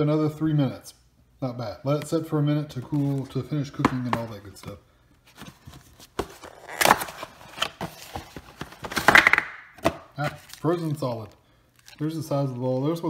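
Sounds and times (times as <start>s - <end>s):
cardboard and plastic crinkling: 5.3s - 13.0s.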